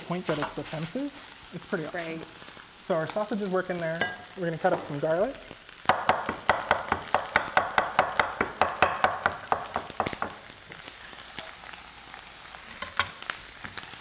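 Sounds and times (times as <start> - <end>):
sausage sizzling in frying pan: 0.0 - 14.0
knife chopping on wooden board: 5.9 - 10.4.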